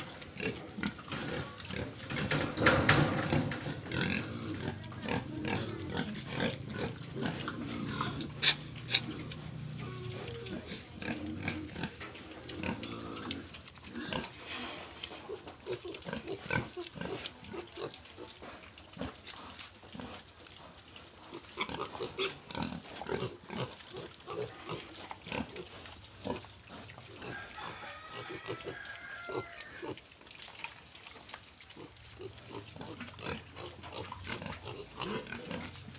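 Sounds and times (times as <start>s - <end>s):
piglets grunting: 0.0s - 14.3s, 21.3s - 30.0s
clicks and knocks of pigs moving: 0.0s - 35.9s.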